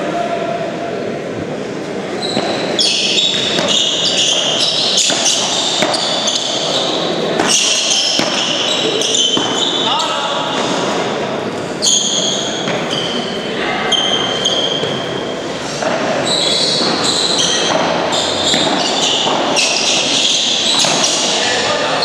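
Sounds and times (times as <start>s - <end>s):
ball bouncing off floor and walls: 2.3s - 6.8s, 7.4s - 9.7s, 16.7s - 21.3s
padel ball hit by paddles: 3.2s - 6.8s, 7.4s - 9.8s, 16.7s - 21.3s.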